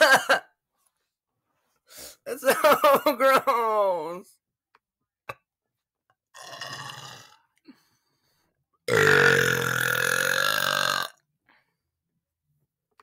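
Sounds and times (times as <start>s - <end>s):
man burping: 6.3s - 7.6s, 8.9s - 11.2s.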